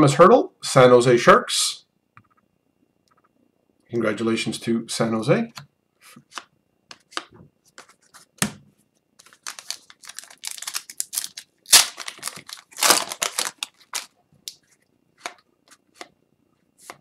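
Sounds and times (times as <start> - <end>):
foil wrapper crinkling and tearing: 9.2 - 14.6
cards being handled: 9.2 - 16.1.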